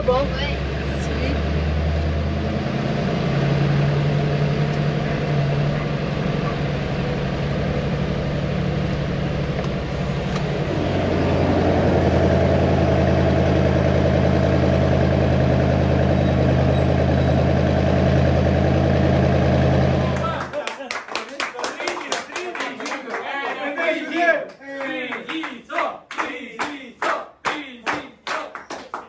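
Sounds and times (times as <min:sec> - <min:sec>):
diesel truck engine: 0:00.0 - 0:20.5.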